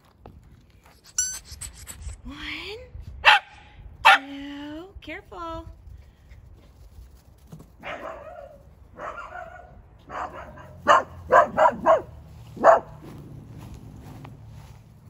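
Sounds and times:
dog barking: 0:03.2 - 0:04.2, 0:07.8 - 0:13.0.

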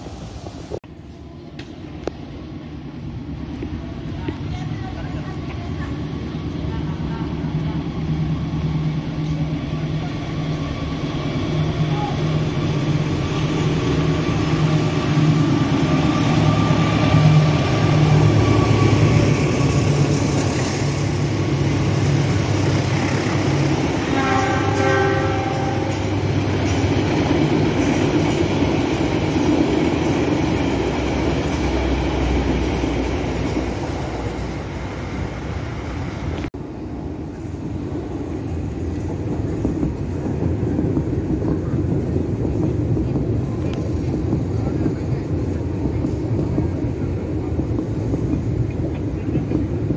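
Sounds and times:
train engine hum: 0:00.0 - 0:49.9
train wheels on rails: 0:00.0 - 0:49.9
train horn: 0:24.0 - 0:26.1.

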